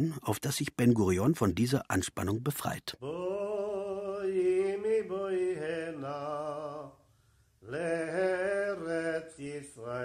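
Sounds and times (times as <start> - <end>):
man singing slow chant: 3.0 - 7.0, 7.6 - 10.0.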